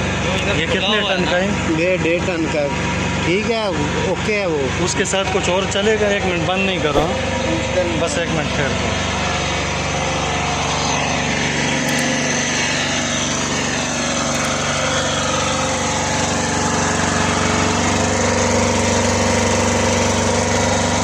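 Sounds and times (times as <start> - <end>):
diesel generator running: 0.0 - 21.0.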